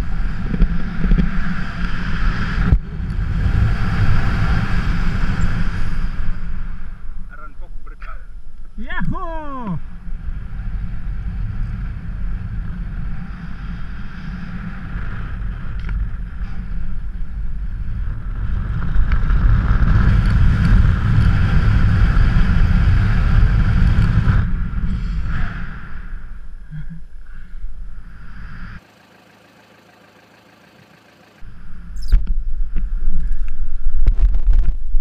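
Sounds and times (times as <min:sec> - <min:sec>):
wind rushing over microphone: 0:00.0 - 0:28.8, 0:31.4 - 0:35.0.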